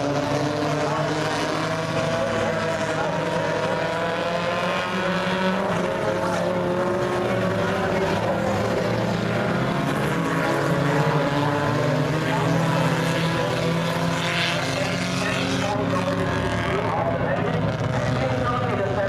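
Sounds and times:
race car engines running hard: 0:00.0 - 0:19.0.

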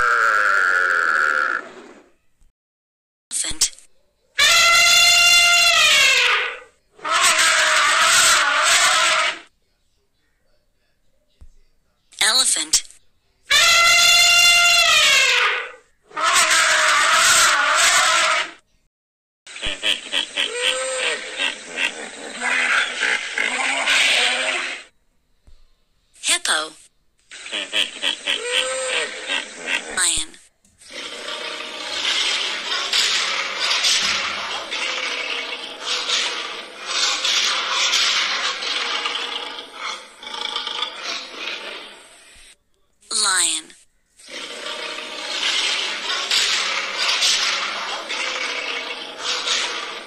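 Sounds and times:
elephant trumpeting: 0:00.0 - 0:02.0, 0:04.4 - 0:09.5, 0:13.5 - 0:18.6, 0:19.6 - 0:24.9, 0:27.3 - 0:30.0, 0:30.8 - 0:42.6, 0:44.2 - 0:50.0
rhinoceros squeaky call: 0:04.4 - 0:09.4, 0:13.5 - 0:18.5, 0:30.9 - 0:42.4
lion snarling: 0:20.0 - 0:24.9, 0:27.3 - 0:30.0, 0:30.8 - 0:42.6, 0:44.2 - 0:50.0
rhinoceros grunting and snuffling: 0:30.8 - 0:42.6.

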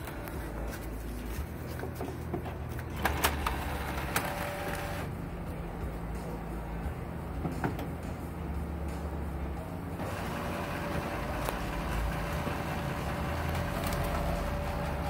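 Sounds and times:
printer humming: 0:00.0 - 0:01.4, 0:02.4 - 0:05.1, 0:09.8 - 0:15.0.

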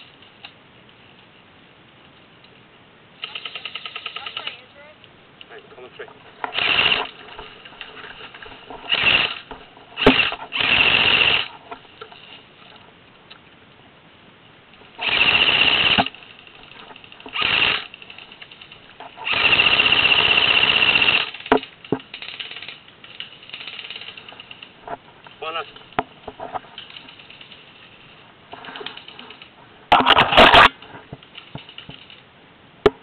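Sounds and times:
airsoft guns firing bursts: 0:03.2 - 0:04.6, 0:06.5 - 0:07.1, 0:15.0 - 0:16.2, 0:19.2 - 0:21.5.

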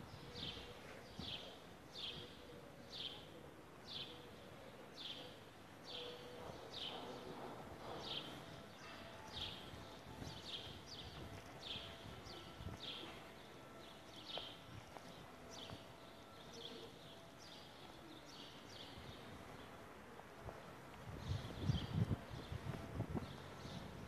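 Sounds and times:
faint footsteps on paving: 0:06.4 - 0:17.6.

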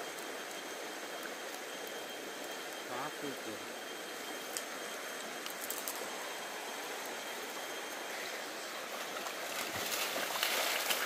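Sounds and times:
river rushing over stones: 0:08.7 - 0:11.0.

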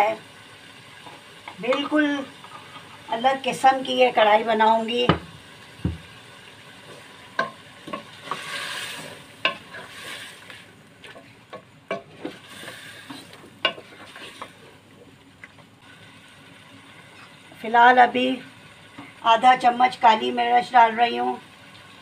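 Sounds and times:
food sizzling: 0:00.0 - 0:22.0
wooden spoon knocking on pot: 0:05.0 - 0:06.1.

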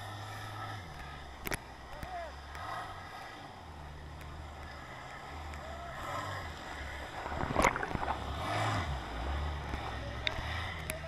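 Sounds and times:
muffled jet ski engine underwater: 0:06.5 - 0:11.0
water sloshing: 0:07.0 - 0:09.4
loud splash: 0:07.1 - 0:08.6.

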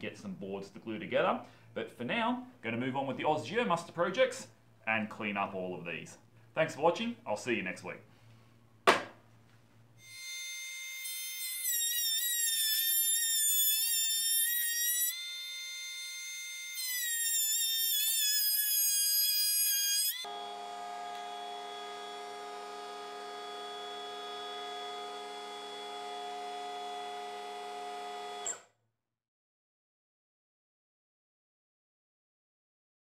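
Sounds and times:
electric planer whining: 0:10.1 - 0:28.6.

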